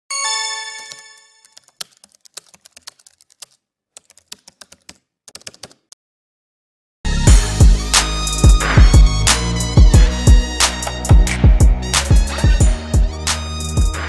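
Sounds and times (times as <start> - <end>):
bell-like chime: 0.1 - 1.6.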